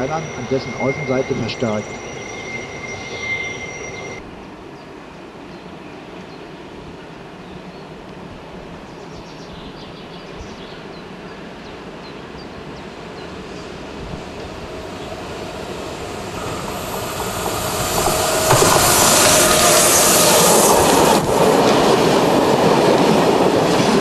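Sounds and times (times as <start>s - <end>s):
train wheels squealing: 0.0s - 4.2s, 13.1s - 22.6s
distant rumble of train wheels: 0.0s - 8.8s, 10.7s - 24.0s.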